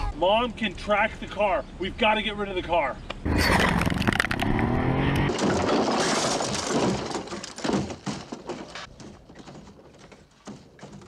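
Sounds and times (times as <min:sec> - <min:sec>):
car crashing down hillside: 0:03.3 - 0:09.8.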